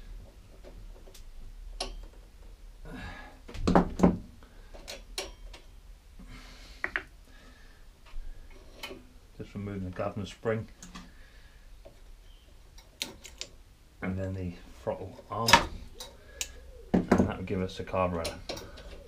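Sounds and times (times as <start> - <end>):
metal parts clicking and knocking: 12.8 - 13.6.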